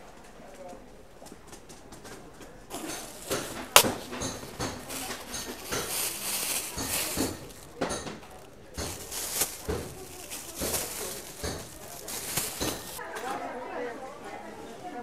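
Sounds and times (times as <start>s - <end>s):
plastic bag rustling: 2.7s - 13.0s.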